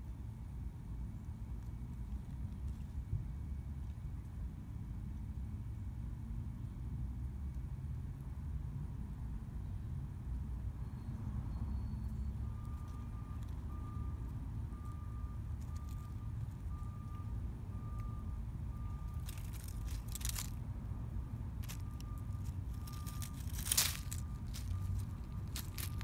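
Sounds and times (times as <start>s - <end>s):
low traffic rumble: 0.0s - 26.0s
dry leaves crackling: 14.9s - 17.1s, 18.6s - 26.0s.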